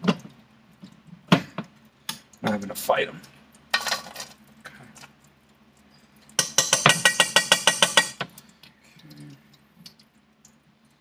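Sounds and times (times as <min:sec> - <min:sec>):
utensil clinking against cookware: 0:06.3 - 0:08.3.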